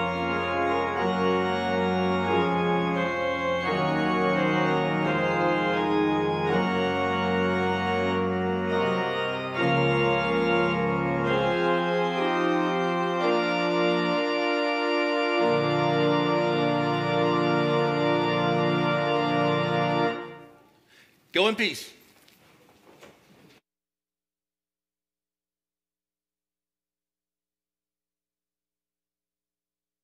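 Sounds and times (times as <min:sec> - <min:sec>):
deep organ pedal bass: 0:00.0 - 0:20.4
church organ chords: 0:00.0 - 0:20.7.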